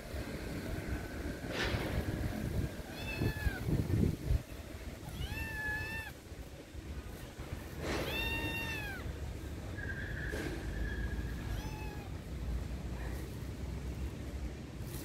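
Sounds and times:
low thumping and rustling: 1.4 - 2.9
kitten meowing: 2.8 - 3.8, 5.0 - 6.2, 8.0 - 9.1, 11.4 - 12.2.

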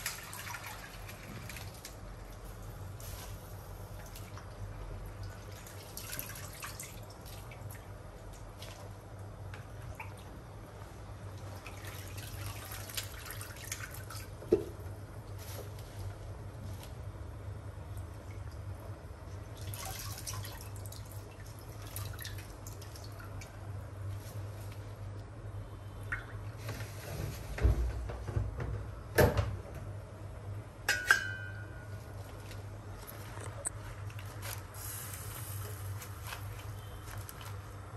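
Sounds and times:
water dripping and splashing: 0.0 - 10.3, 11.3 - 15.5, 17.9 - 23.6, 26.0 - 26.6
steady low hum: 0.6 - 37.9
ringing knock on metal pot: 30.9 - 31.8.

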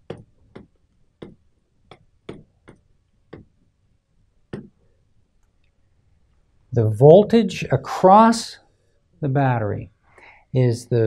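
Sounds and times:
stylus tapping on screen: 0.0 - 3.6, 4.5 - 4.8.

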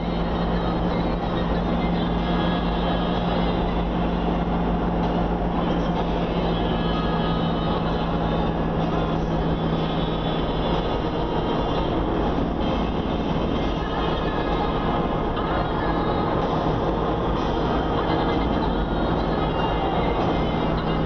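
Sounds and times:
engine and road noise: 0.0 - 21.0
low steady hum: 0.0 - 21.0.

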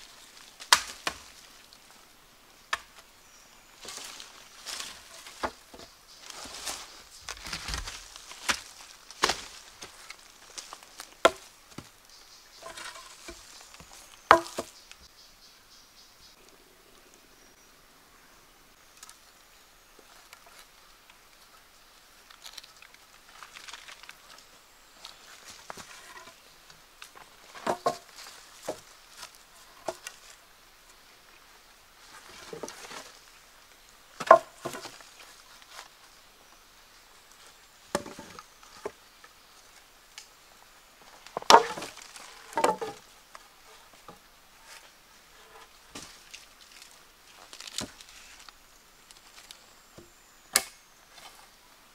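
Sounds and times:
soft rustle: 2.9 - 15.1, 22.2 - 49.9
chopping strikes into wood: 14.3 - 14.7, 50.5 - 50.8.

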